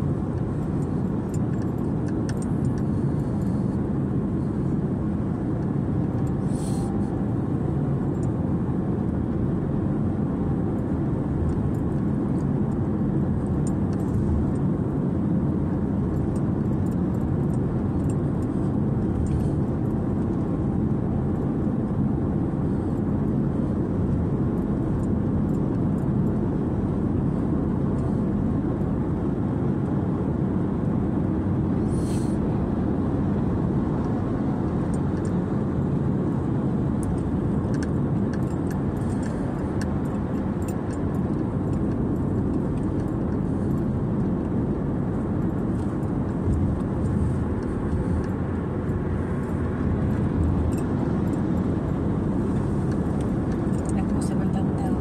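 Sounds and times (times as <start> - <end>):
car cabin road rumble: 0.0 - 55.0.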